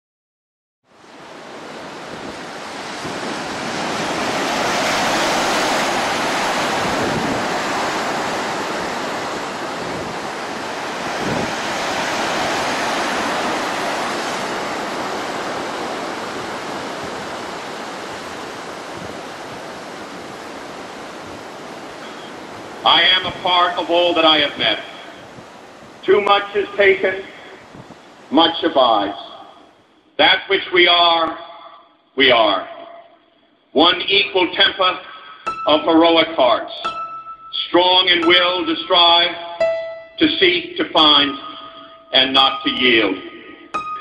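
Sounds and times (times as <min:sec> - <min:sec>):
sea water rushing and churning: 0:00.9 - 0:30.0
wind noise: 0:01.0 - 0:28.3.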